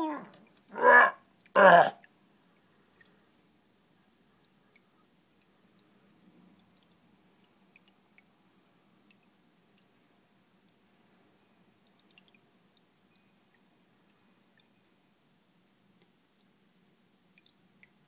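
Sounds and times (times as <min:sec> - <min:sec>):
small ticks: 0:04.4 - 0:09.9, 0:11.8 - 0:13.7, 0:15.6 - 0:18.0.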